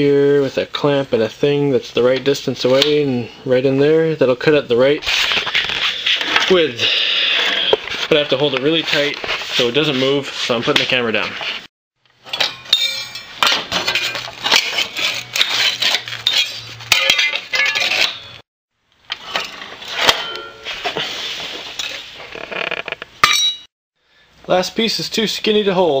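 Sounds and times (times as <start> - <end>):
metal chips clinking: 12.2 - 18.4.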